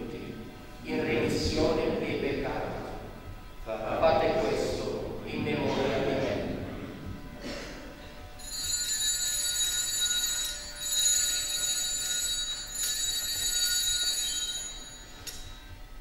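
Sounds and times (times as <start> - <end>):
altar bells jingling: 8.4 - 15.8.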